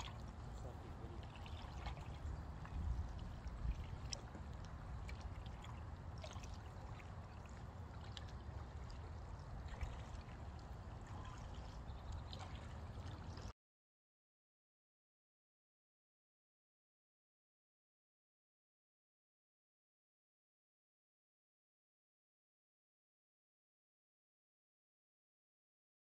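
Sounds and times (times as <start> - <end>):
wind rumble on microphone: 0.0 - 7.7
small paddle splashes: 0.0 - 13.5
water dripping off paddle: 0.0 - 13.5.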